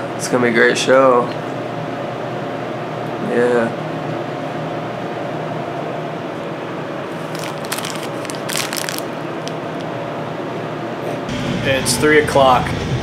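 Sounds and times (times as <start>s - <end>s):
steady background hum: 0.0s - 13.0s
plastic wrapper crinkling: 7.1s - 9.9s.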